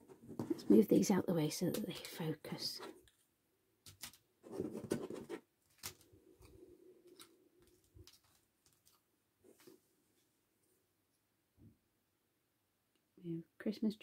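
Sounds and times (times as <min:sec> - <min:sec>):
plastic packaging rustling: 0:07.0 - 0:09.1.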